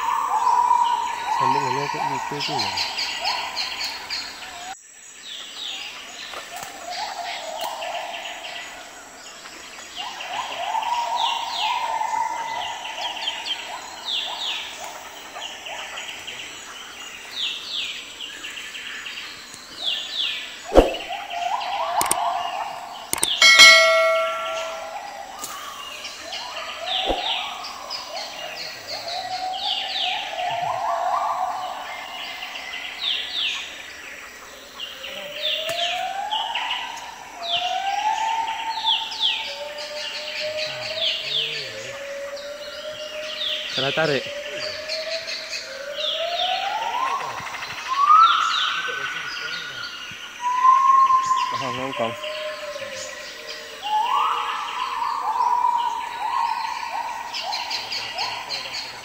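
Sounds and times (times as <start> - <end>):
birds chirping and whistling: 0.0 - 4.5, 17.1 - 33.7, 34.8 - 59.0
loud bright high note: 23.4 - 25.3.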